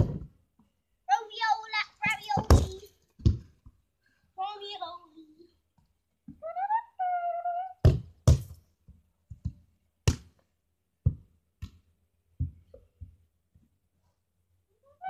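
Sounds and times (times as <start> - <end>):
football bouncing thuds: 2.0 - 3.5, 7.8 - 8.6, 9.3 - 10.3.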